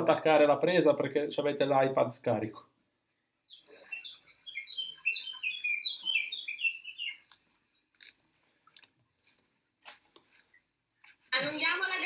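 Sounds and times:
songbird chirping: 2.9 - 12.0.

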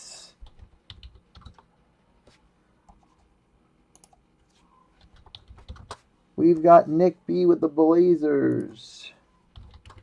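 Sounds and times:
computer keys clicking: 0.4 - 1.7, 3.9 - 4.2, 5.0 - 6.0, 9.5 - 10.0.

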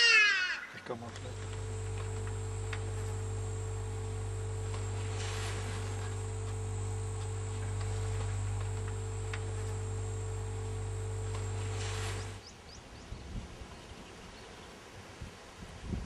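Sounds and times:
background hiss: 0.0 - 16.0
low hum: 0.8 - 12.4.

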